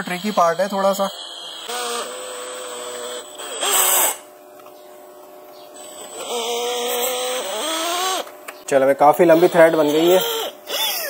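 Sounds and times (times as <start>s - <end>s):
cordless drill whining: 0.0s - 4.3s, 5.8s - 8.4s, 9.2s - 11.0s.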